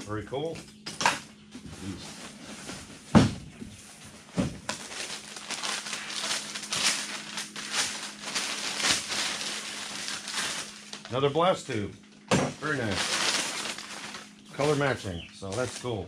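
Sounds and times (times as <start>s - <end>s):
packing paper crinkling: 4.2s - 11.2s, 12.6s - 15.9s.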